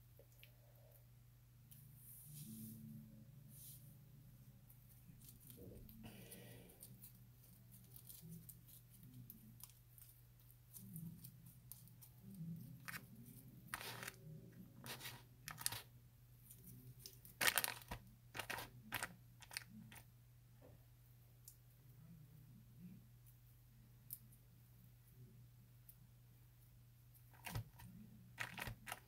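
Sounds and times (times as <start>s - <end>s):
slime squishing crackles: 5.0s - 15.9s, 16.5s - 20.0s, 27.4s - 29.0s.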